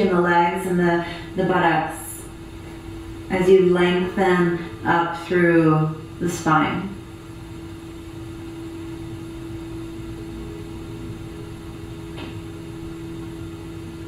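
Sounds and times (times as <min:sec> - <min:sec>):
low steady hum: 0:00.0 - 0:14.0
ambient music drone: 0:08.2 - 0:14.0.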